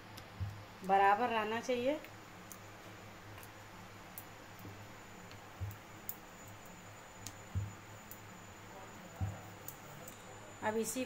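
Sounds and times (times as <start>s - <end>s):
faint steady hum: 0.0s - 11.0s
soft thumps: 7.5s - 7.8s, 9.2s - 9.4s.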